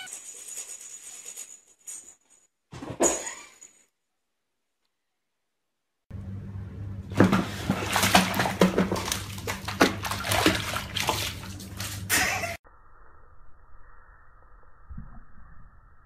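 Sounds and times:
steady low hum: 0:06.1 - 0:16.0
water sloshing against tub: 0:07.1 - 0:12.6
cat splashing in water: 0:07.2 - 0:12.6.

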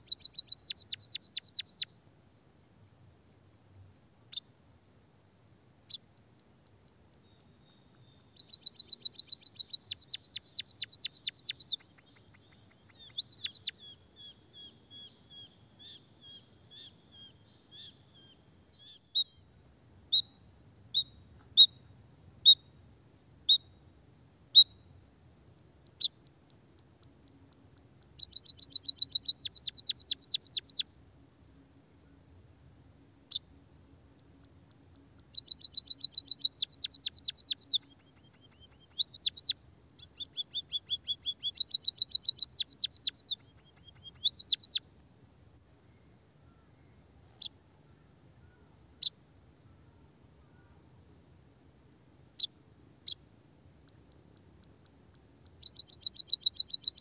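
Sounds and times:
bird rapid ticking song: 0:00.0 - 0:01.9, 0:05.8 - 0:19.4, 0:20.0 - 0:22.8, 0:24.5 - 0:24.9, 0:25.5 - 0:31.0, 0:33.2 - 0:45.0, 0:52.3 - 0:57.0.

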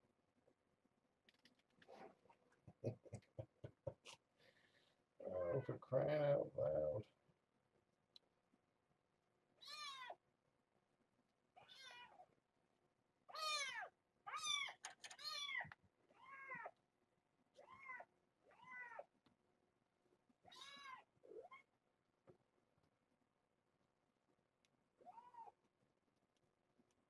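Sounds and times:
kittens meowing: 0:05.2 - 0:05.8, 0:09.6 - 0:10.2, 0:11.6 - 0:12.2, 0:13.3 - 0:16.7, 0:20.4 - 0:21.7, 0:25.0 - 0:25.6.

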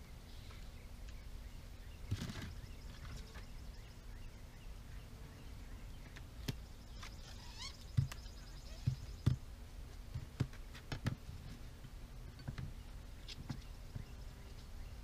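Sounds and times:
high chirping call: 0:01.2 - 0:09.3.

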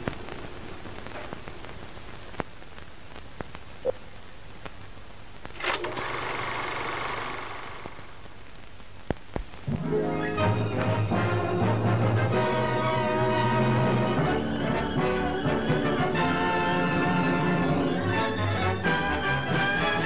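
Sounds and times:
worn film crackle and pops: 0:00.0 - 0:05.6, 0:07.2 - 0:09.7
film projector rattle: 0:05.6 - 0:08.4.

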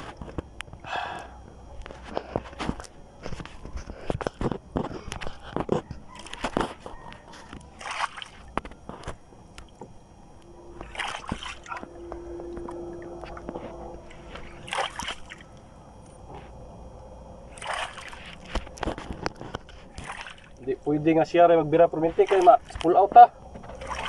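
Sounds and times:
faint steady hum: 0:00.0 - 0:24.0
water splashing against boat hull: 0:06.2 - 0:09.9, 0:10.8 - 0:15.4, 0:17.5 - 0:20.6, 0:22.1 - 0:24.0
low steady rumble: 0:08.4 - 0:24.0.

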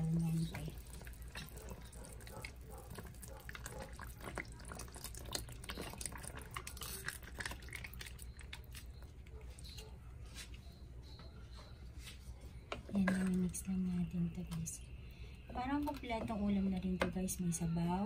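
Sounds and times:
broth bubbling and popping: 0:00.0 - 0:09.2
sauce pouring: 0:00.5 - 0:09.1.

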